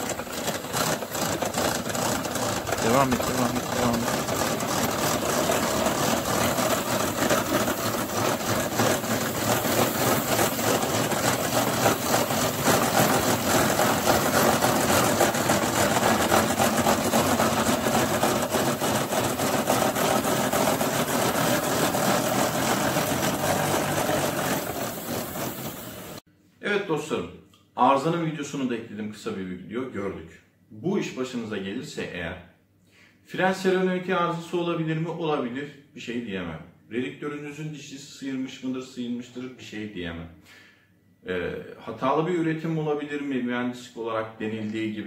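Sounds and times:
gearbox grinding rattle: 0.0s - 26.2s
wheelchair motor running: 0.0s - 26.2s.

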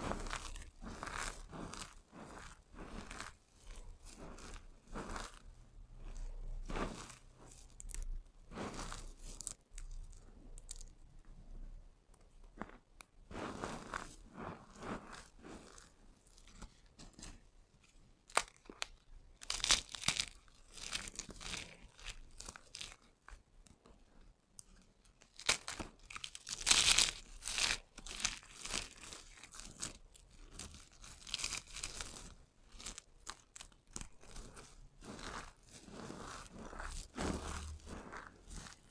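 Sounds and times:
soap being crushed by hand: 18.2s - 23.4s, 25.1s - 38.9s.

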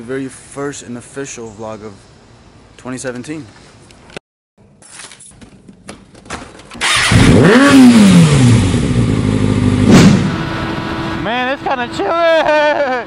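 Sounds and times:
motorcycle engine starting and idling: 6.0s - 10.2s.

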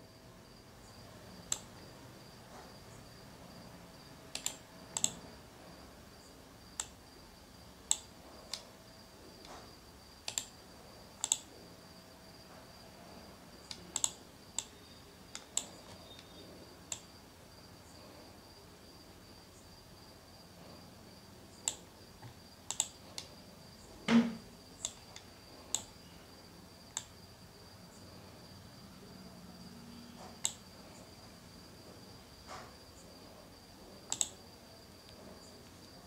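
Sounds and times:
faint high-pitched whine: 0.0s - 36.0s
computer mouse clicking: 1.4s - 1.7s, 4.3s - 5.2s, 6.8s - 7.0s, 7.8s - 8.7s, 10.2s - 10.5s, 11.2s - 11.5s, 13.7s - 17.1s, 21.6s - 23.3s, 24.8s - 26.0s, 26.9s - 27.2s, 30.2s - 30.6s, 34.0s - 34.4s.

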